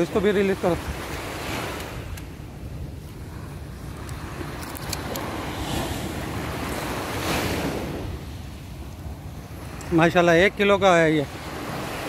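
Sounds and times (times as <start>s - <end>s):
surf washing: 0.0s - 12.0s
faint sharp clicks: 1.8s - 2.3s.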